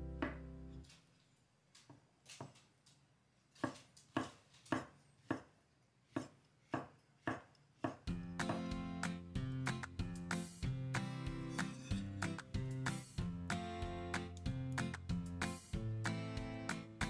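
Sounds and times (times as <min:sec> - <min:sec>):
knife slicing mushrooms: 0:03.6 - 0:08.7.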